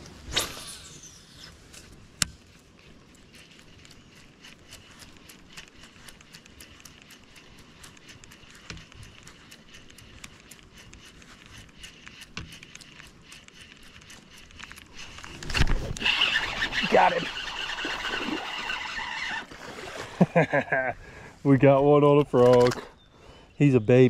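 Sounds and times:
fishing reel ticking: 0:00.5 - 0:19.6.

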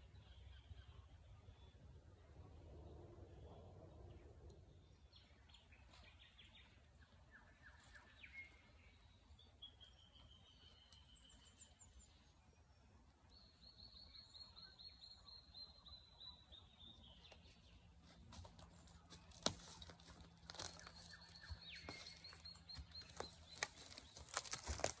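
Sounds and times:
rustling near microphone: 0:17.3 - 0:25.0.

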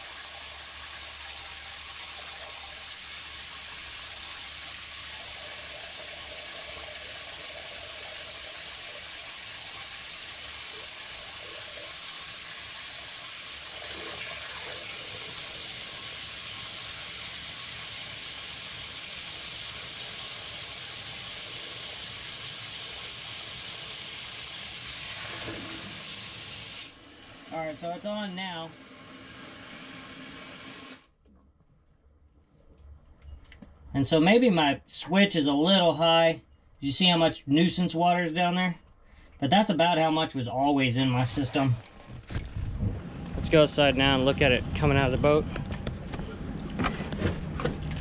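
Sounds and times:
water spraying hiss: 0:00.0 - 0:27.0.

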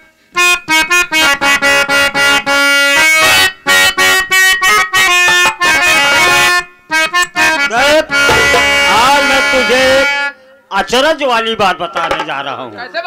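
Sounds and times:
harmonium playing a quick melody: 0:00.3 - 0:10.4.

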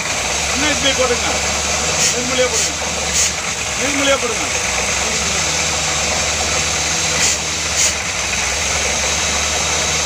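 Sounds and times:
drilling rig humming: 0:00.0 - 0:10.0
hissing bursts: 0:05.6 - 0:08.1.

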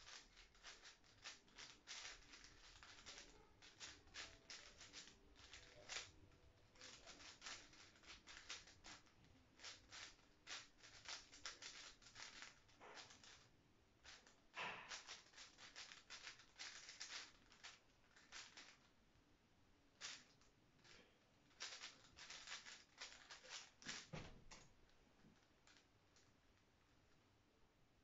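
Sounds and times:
plastic puzzle cube clicking: 0:00.0 - 0:06.2, 0:06.8 - 0:13.4, 0:14.1 - 0:18.8, 0:20.0 - 0:20.3, 0:21.6 - 0:24.6.

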